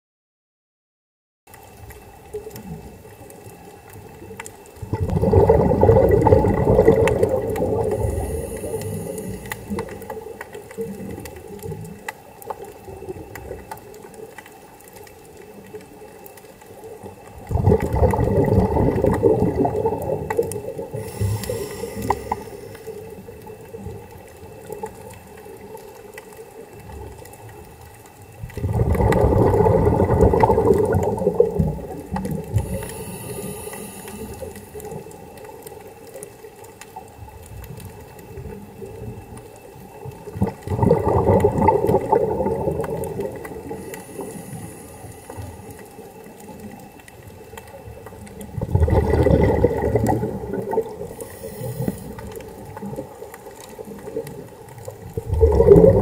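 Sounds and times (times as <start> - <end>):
bubbling exhaled air: 4.8 - 12.0, 17.0 - 25.2, 28.4 - 35.6, 38.2 - 56.0
regulator inhale hiss: 7.9 - 10.2, 20.8 - 23.4, 32.5 - 35.0, 43.6 - 46.0, 51.0 - 52.5.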